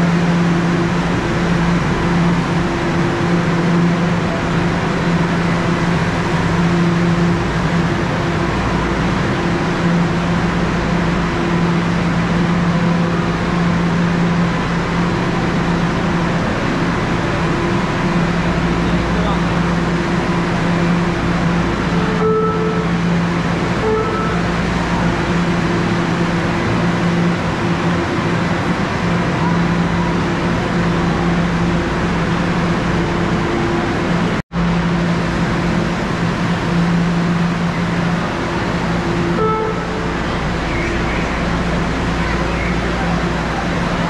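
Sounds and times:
steady mechanical hum: 0:00.0 - 0:44.0.

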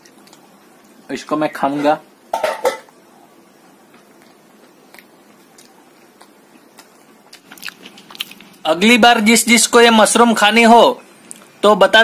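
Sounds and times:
faint chewing: 0:00.0 - 0:01.0, 0:03.8 - 0:08.6.

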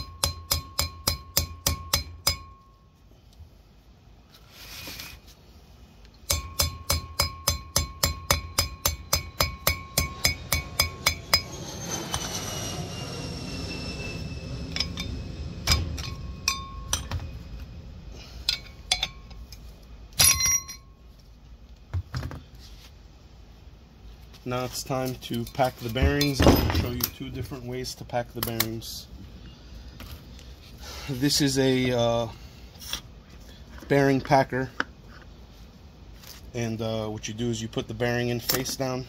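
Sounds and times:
hammer striking metal: 0:00.0 - 0:02.8, 0:06.2 - 0:11.6, 0:14.7 - 0:17.4
metal rotor ringing: 0:06.3 - 0:17.5
metal clinks: 0:18.4 - 0:21.0.

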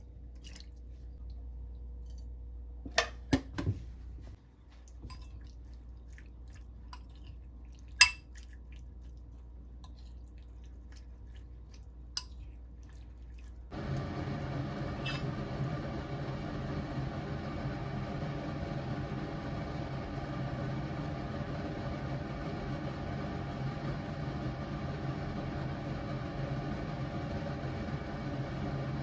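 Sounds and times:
wet squishing of raw chicken: 0:04.8 - 0:13.7.

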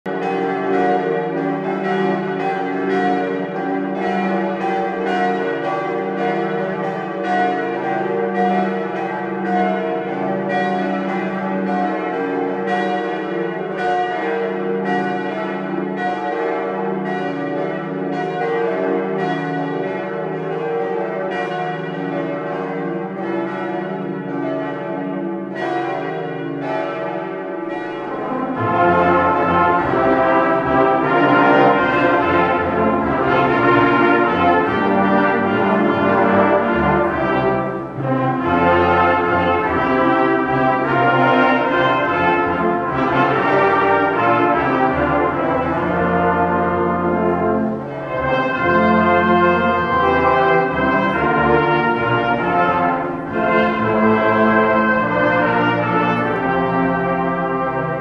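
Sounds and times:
church bells pealing: 0:00.0 - 0:58.0
brass choir playing: 0:28.1 - 0:58.0.

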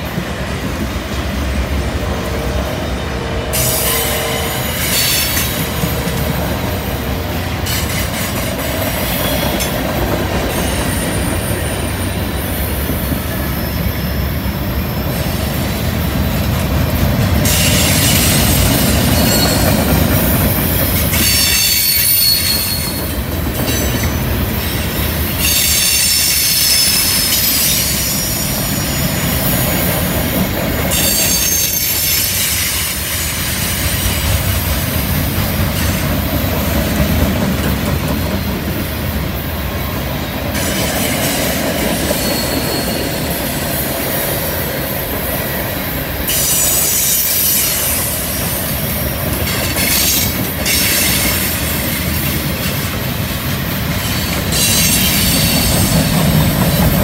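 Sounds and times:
steel wheels rumbling on rail: 0:00.0 - 0:57.0
wheel flange squeal: 0:13.4 - 0:15.4, 0:17.4 - 0:20.0, 0:21.1 - 0:23.1, 0:25.4 - 0:29.9, 0:30.9 - 0:33.0, 0:40.6 - 0:43.8.

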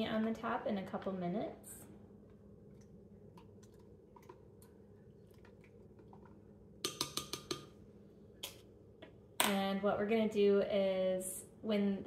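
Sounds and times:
spoon stirring water in glass: 0:05.2 - 0:07.7.

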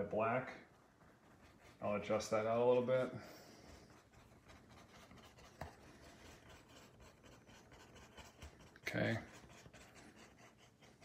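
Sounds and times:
paintbrush scratching on canvas: 0:00.0 - 0:11.0.

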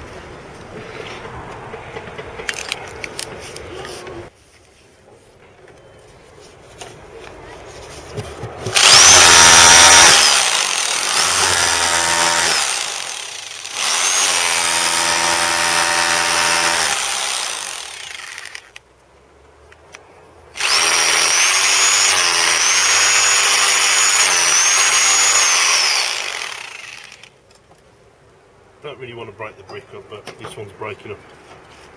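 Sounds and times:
hammer drill chiselling brick: 0:08.6 - 0:18.8, 0:20.6 - 0:27.3.

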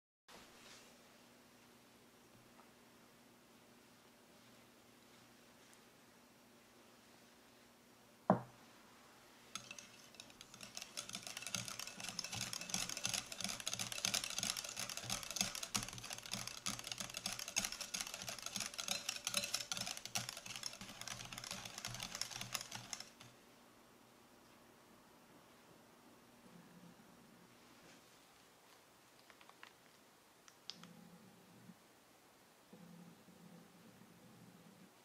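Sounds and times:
wire whisk clicking on glass bowl: 0:09.6 - 0:23.3.

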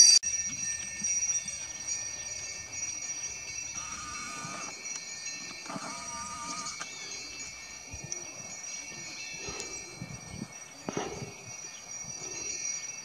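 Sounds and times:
sleigh bells jingling: 0:00.0 - 0:13.0.

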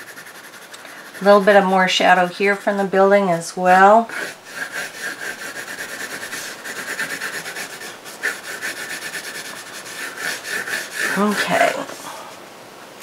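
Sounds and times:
pencil scratching on paper: 0:00.0 - 0:02.2, 0:04.0 - 0:12.2.

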